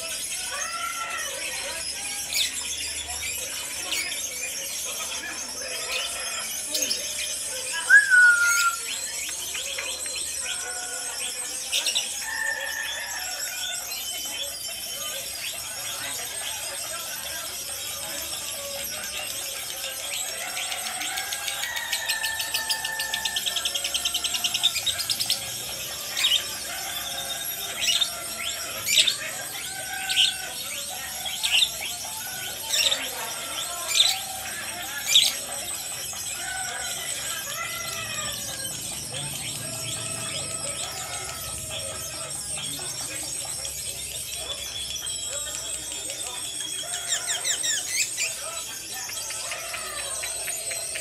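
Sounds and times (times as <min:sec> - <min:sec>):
bird rattling trill: 0:00.0 - 0:51.0
lovebird whistling and chirping: 0:00.5 - 0:12.8.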